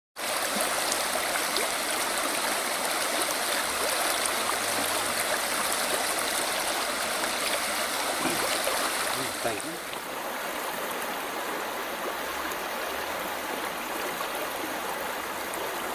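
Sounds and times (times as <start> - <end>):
stream babbling over pebbles: 0.2 - 15.9.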